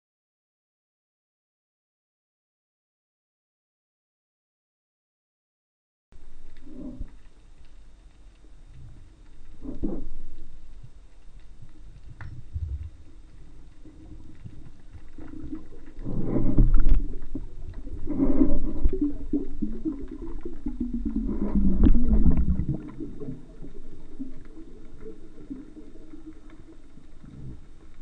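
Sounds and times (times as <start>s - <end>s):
low wavering hum: 6.2s - 28.0s
underwater water rushing and knocking: 8.8s - 28.0s.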